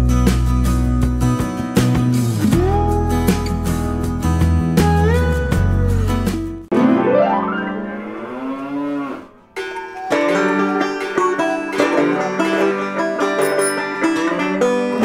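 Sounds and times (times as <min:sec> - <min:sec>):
banjo and acoustic guitar music: 0:00.0 - 0:07.9, 0:09.6 - 0:15.0
rising and falling sliding tone: 0:06.7 - 0:09.4.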